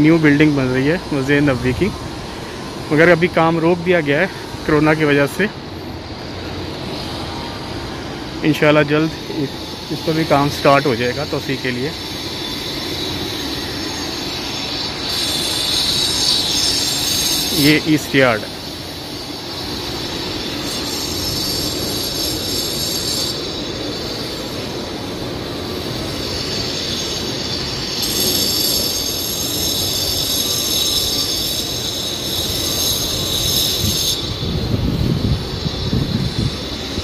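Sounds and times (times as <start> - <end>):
high-pitched mechanical whine: 0.0 - 37.0.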